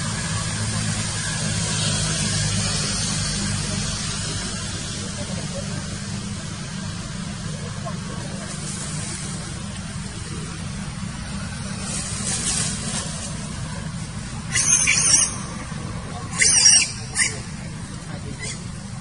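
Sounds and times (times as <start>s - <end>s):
monkey squealing: 14.5s - 17.7s, 18.3s - 18.8s.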